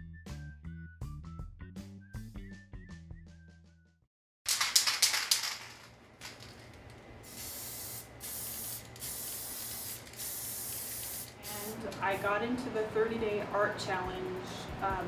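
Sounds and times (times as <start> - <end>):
spray paint can hissing: 4.5 - 12.2.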